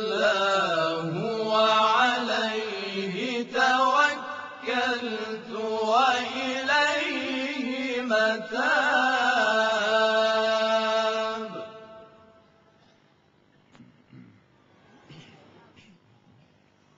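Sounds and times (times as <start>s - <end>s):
male voices chanting in chorus: 0.0s - 12.1s.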